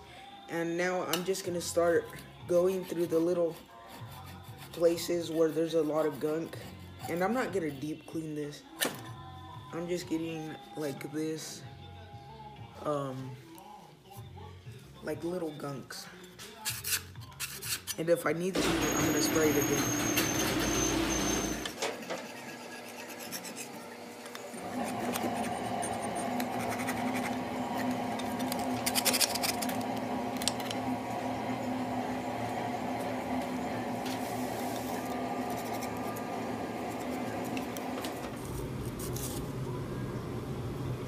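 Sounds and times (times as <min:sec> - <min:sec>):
metal scraper rasping rust: 0:02.6 - 0:07.3, 0:21.9 - 0:23.9, 0:24.6 - 0:29.8
steady hum: 0:24.4 - 0:41.0.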